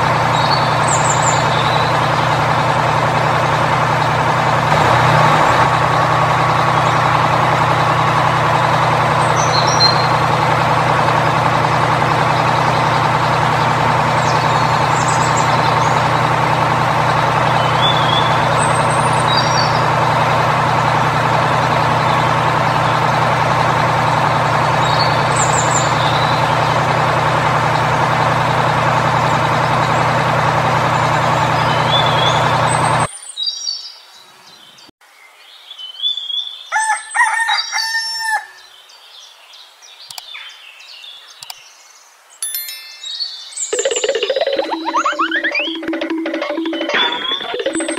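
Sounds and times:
heavy truck engine running: 0.0s - 33.1s, 43.8s - 47.9s
bird chirps: 0.2s - 2.2s, 9.2s - 10.2s, 12.4s - 16.4s, 17.5s - 20.0s, 31.4s - 34.0s, 42.4s - 47.9s.

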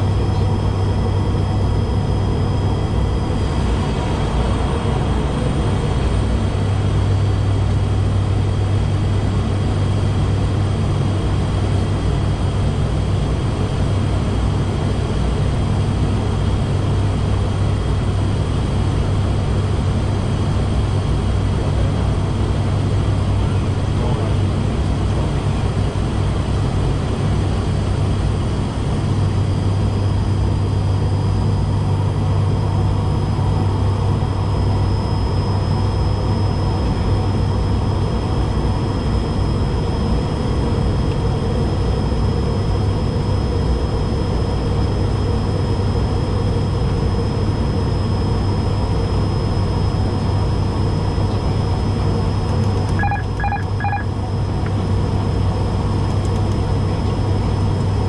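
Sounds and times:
turboprop engines droning: 0.0s - 58.0s
thin high whine: 42.5s - 55.2s.

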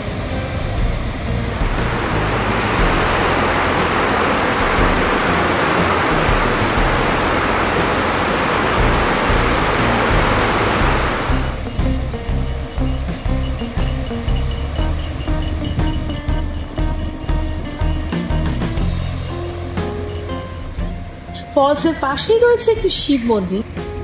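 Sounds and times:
background music with bass notes: 0.0s - 24.0s
waterfall rushing: 1.3s - 11.8s.

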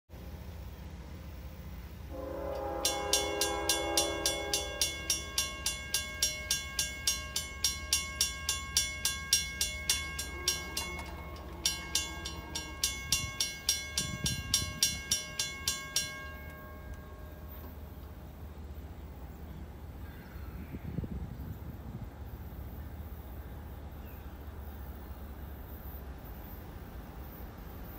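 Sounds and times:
brief steady tone: 2.1s - 18.1s
mechanical crossing bell ringing: 2.6s - 18.0s.

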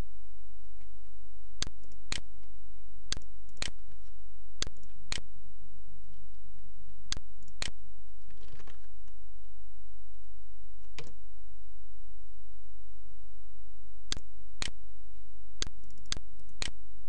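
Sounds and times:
low electrical hum: 0.0s - 17.0s
computer mouse clicks: 3.1s - 3.8s, 7.1s - 7.8s, 15.6s - 16.8s.

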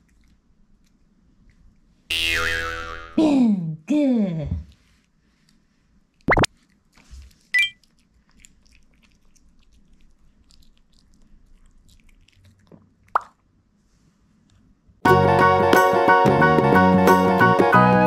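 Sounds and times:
dog chewing quietly: 0.0s - 2.1s, 4.7s - 13.2s.

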